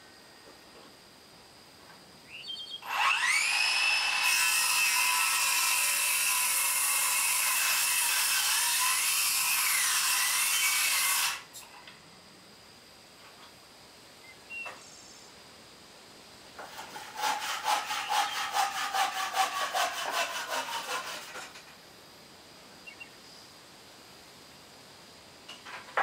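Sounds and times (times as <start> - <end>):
circular saw cutting wood: 2.8 - 11.5, 16.6 - 21.7.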